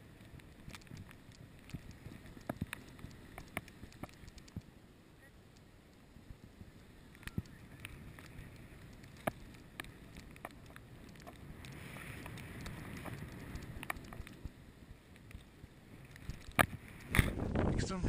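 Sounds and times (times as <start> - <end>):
sharp clicks and knocks: 0.6 - 4.7.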